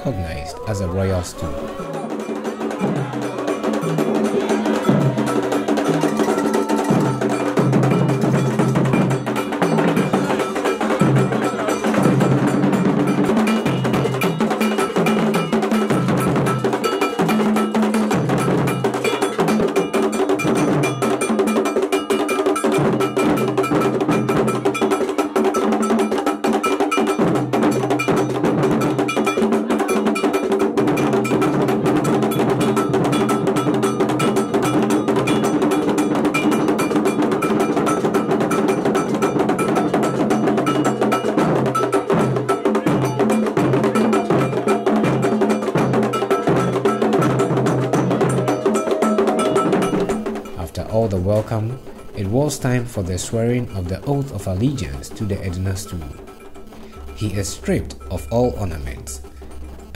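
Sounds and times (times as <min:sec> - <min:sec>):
drum ensemble: 0:00.0 - 0:59.9.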